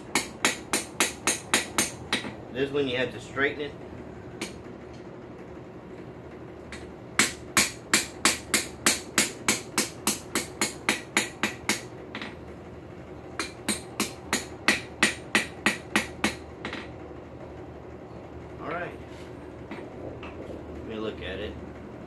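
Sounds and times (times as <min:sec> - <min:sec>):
hammer striking steel on anvil: 0:00.0 - 0:02.3, 0:06.7 - 0:12.3, 0:13.4 - 0:16.9.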